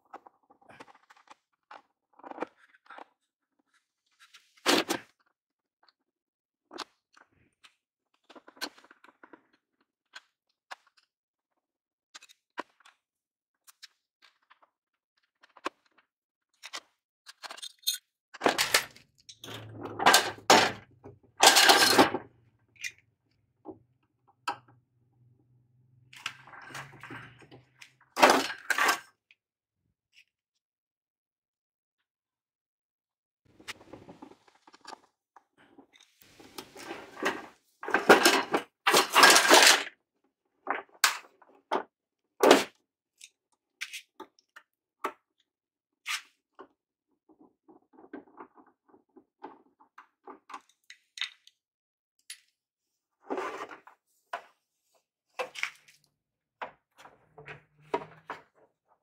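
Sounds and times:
metal parts rattling: 0:17.4 - 0:20.8, 0:21.4 - 0:22.2, 0:37.9 - 0:39.8.

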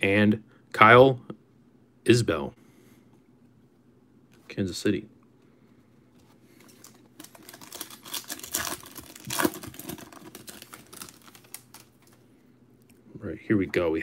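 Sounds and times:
foil wrapper tearing and crinkling: 0:06.7 - 0:12.2.

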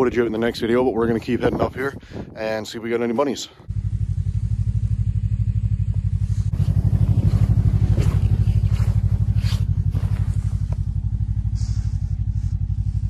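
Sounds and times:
snowmobile engine running: 0:03.8 - 0:13.0.

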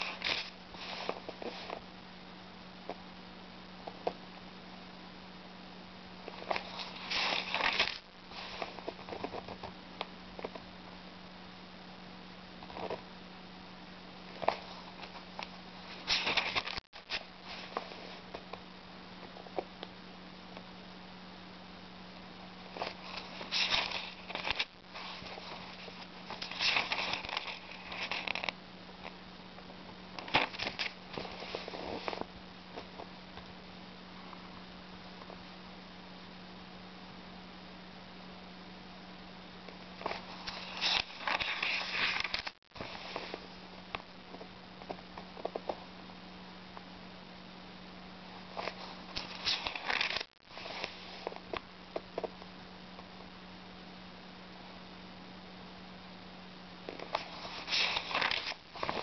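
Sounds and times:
book pages rustling: 0:00.0 - 0:01.8, 0:06.3 - 0:09.7, 0:12.6 - 0:13.0, 0:14.3 - 0:18.6, 0:22.8 - 0:28.6, 0:30.2 - 0:33.1, 0:40.0 - 0:43.5, 0:48.6 - 0:51.6, 0:56.9 - 0:59.0
steady low hum: 0:00.0 - 0:59.0.

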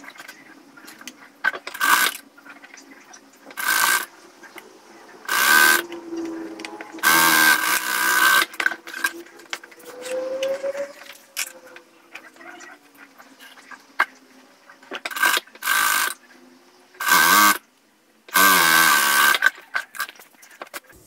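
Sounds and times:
sewing machine stitching: 0:05.2 - 0:06.0, 0:07.0 - 0:09.1.

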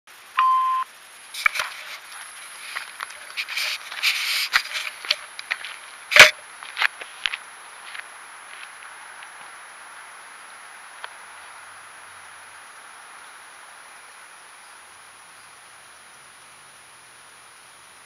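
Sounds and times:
faint steady hiss: 0:00.1 - 0:18.0
camera being handled: 0:01.4 - 0:06.4.

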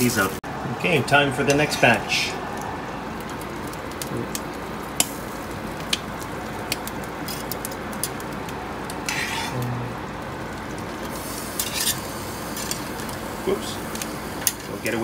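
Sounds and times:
steady hiss: 0:10.4 - 0:15.0.

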